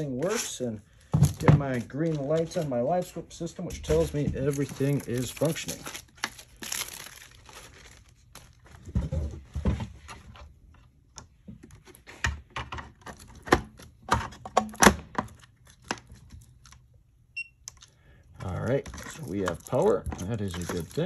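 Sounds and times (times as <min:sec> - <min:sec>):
plastic wrap crinkling: 0:03.9 - 0:08.9, 0:18.6 - 0:21.0.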